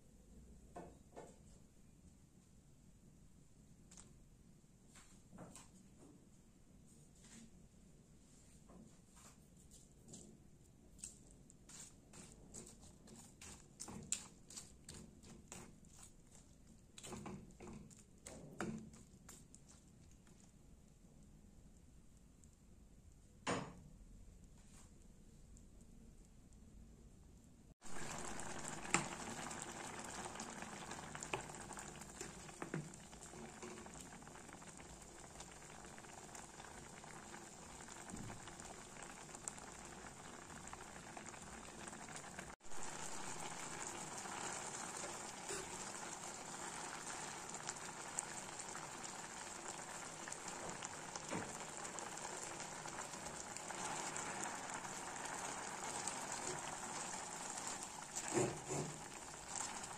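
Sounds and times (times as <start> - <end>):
food sizzling in a wok: 27.8 - 59.9.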